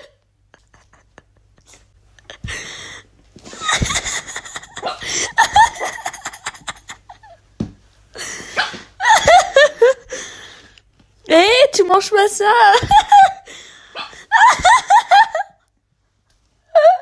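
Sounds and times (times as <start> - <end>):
person laughing hard: 0.0 - 7.4, 8.2 - 10.1, 12.8 - 13.4, 14.1 - 15.6.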